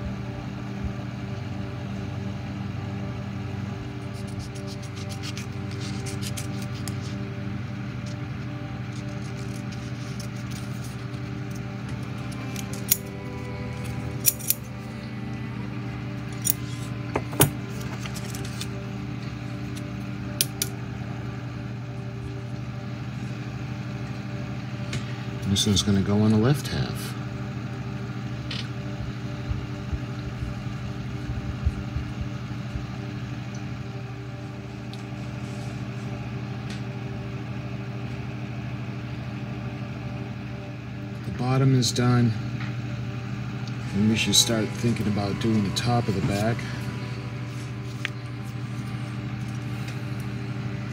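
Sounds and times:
low hum: 0.0 - 50.9
scissors snipping: 4.0 - 7.2.

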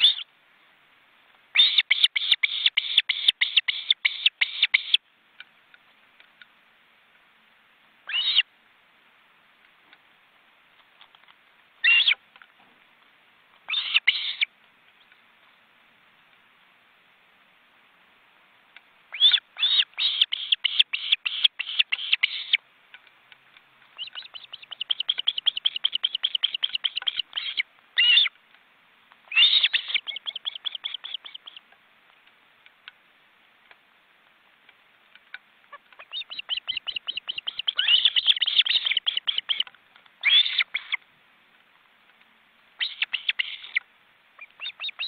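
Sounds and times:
ospreys calling: 0.0 - 0.3, 1.5 - 5.0, 8.1 - 8.5, 13.7 - 14.5, 19.1 - 22.6, 24.0 - 28.3, 29.2 - 31.6, 35.7 - 41.0, 42.8 - 43.8, 44.4 - 45.0.

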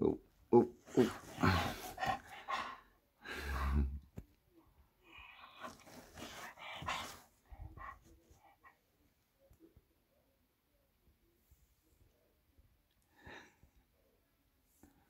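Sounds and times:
dog breathy stretching noises: 0.8 - 4.0, 5.4 - 8.2.

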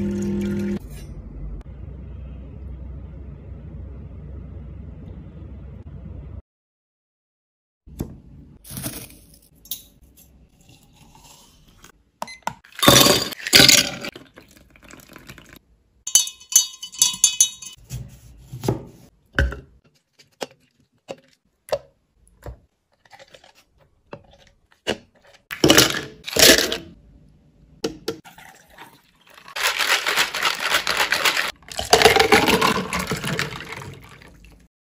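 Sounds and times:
drink with ice pouring: 12.7 - 17.5, 28.2 - 34.7
utensils clinking and knocking: 16.1 - 17.8.

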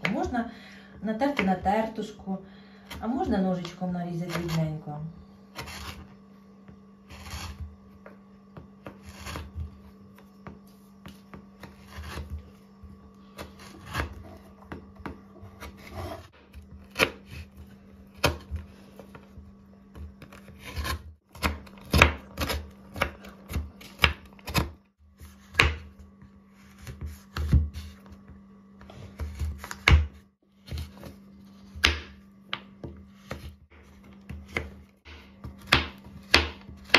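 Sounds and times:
knife chopping on wooden board: 6.7 - 12.6, 13.3 - 36.9.

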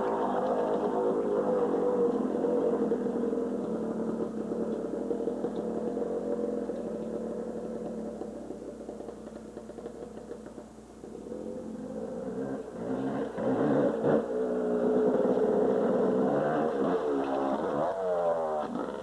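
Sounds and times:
dirt bike engine running: 0.0 - 19.0.

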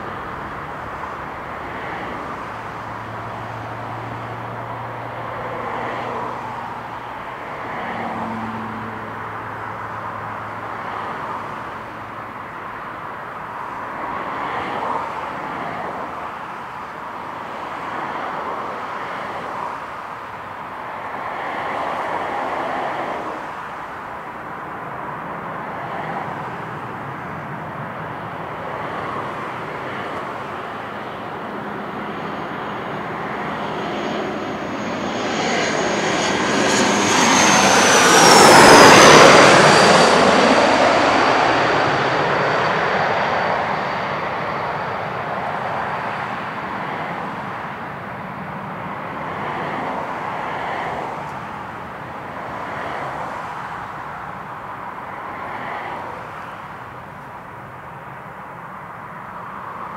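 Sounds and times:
jet airliner passing: 0.0 - 11.8, 20.9 - 57.1.

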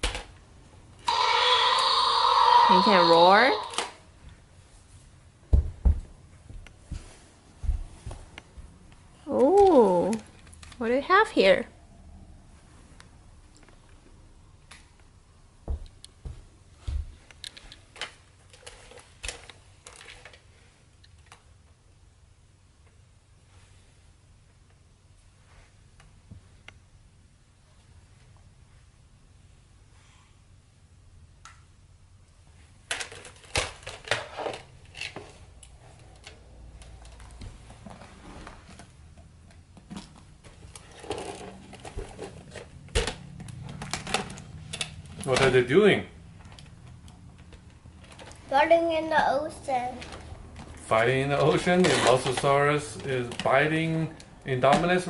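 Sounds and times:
plastic figures clacking together: 32.9 - 35.1
plastic toys knocking and clattering: 32.9 - 35.4, 39.8 - 45.6, 51.4 - 53.6.

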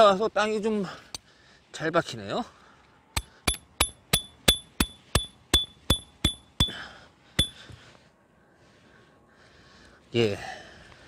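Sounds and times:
hammer striking tent peg: 3.2 - 6.8, 7.4 - 7.6.

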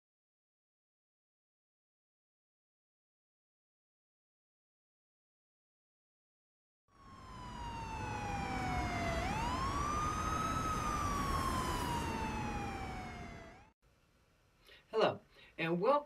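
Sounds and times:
emergency vehicle siren wailing: 6.9 - 13.8.

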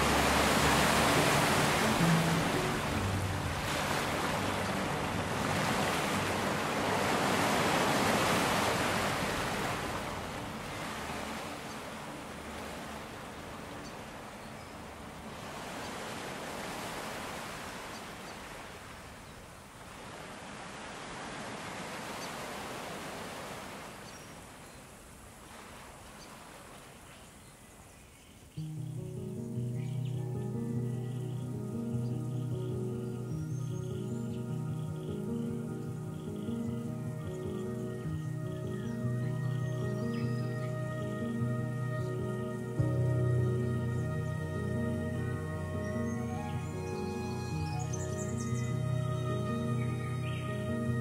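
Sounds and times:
ocean waves breaking: 0.0 - 24.6.

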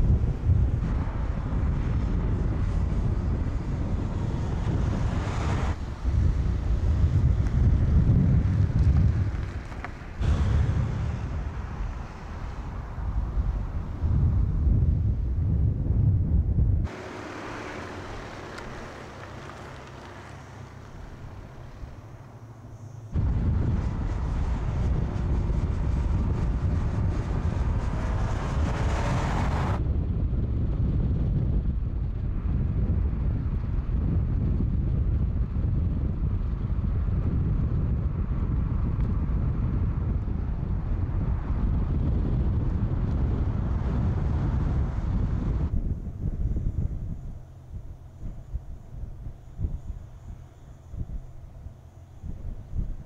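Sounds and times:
car driving past: 0.8 - 14.6, 16.8 - 29.8.

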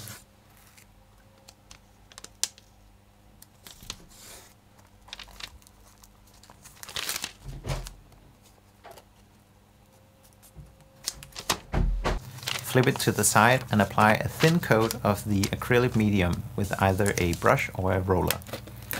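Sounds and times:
paper rustling: 3.6 - 9.4, 10.2 - 18.9.

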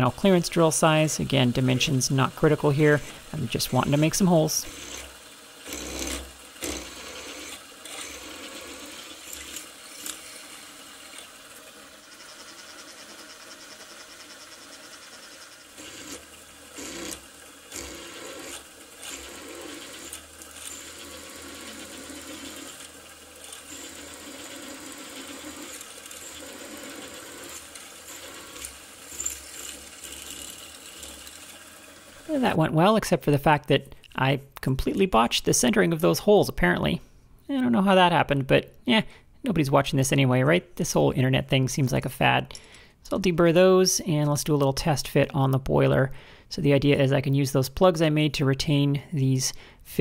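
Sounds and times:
drill ticking and scraping: 0.0 - 32.4
milling machine hum: 0.0 - 32.4.

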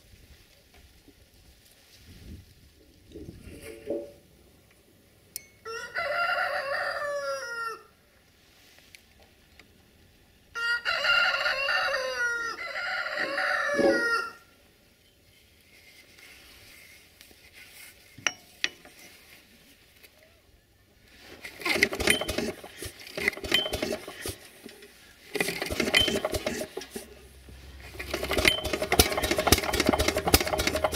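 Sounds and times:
rooster crowing: 5.6 - 8.0, 10.5 - 14.5.

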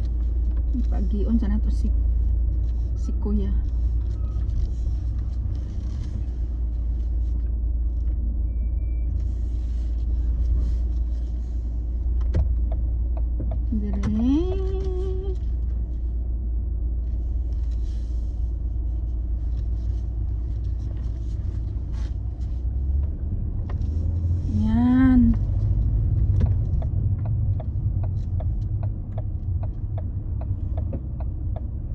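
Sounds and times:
car engine and tyres rumbling: 0.0 - 31.9
turn indicator ticking: 11.9 - 15.8, 24.5 - 31.9.

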